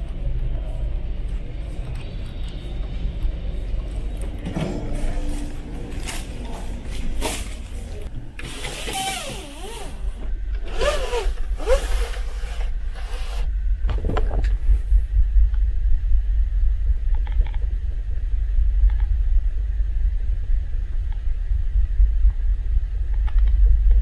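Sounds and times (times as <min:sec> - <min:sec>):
ferry engines rumbling: 0:00.0 - 0:08.4
rustling and scraping: 0:04.4 - 0:14.7.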